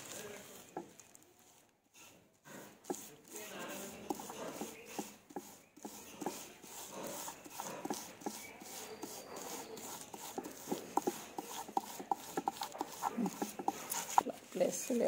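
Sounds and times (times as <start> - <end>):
plastic sheet crinkling: 0.0 - 1.8.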